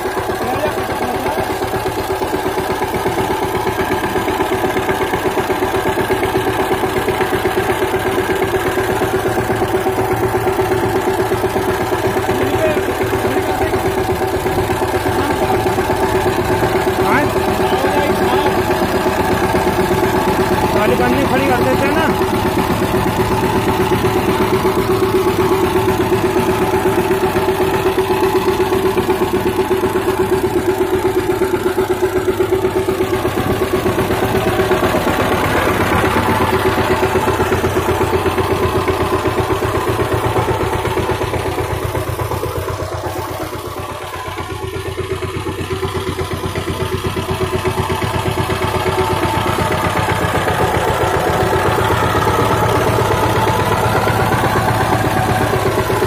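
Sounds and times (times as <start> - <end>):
diesel engine chugging: 0.0 - 56.0.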